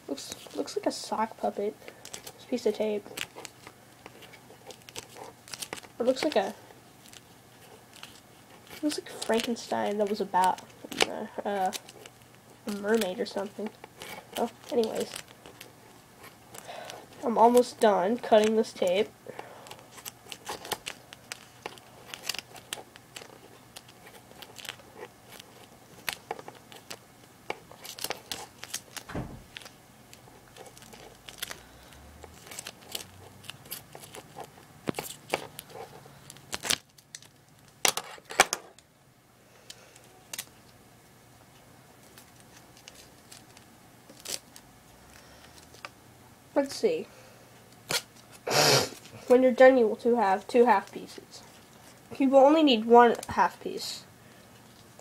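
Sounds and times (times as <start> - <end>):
scissors cutting duct tape: 12.7 - 15.7.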